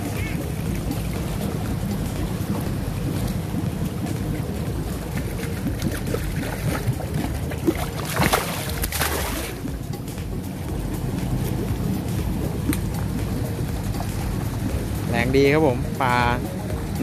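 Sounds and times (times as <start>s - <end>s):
fish splashing at water surface: 0.0s - 9.8s
moving water rumble: 0.0s - 17.0s
wind: 0.0s - 17.0s.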